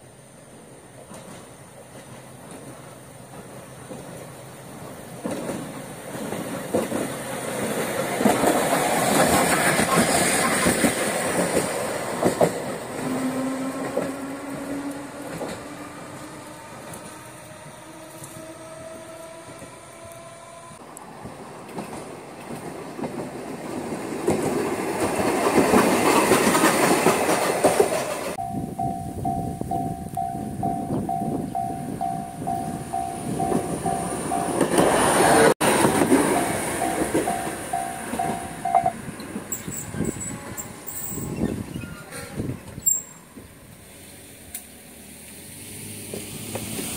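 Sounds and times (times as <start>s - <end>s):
tram wheels clattering on rails: 0.5s - 46.9s
level-crossing bell ringing: 28.4s - 34.8s, 36.3s - 39.0s.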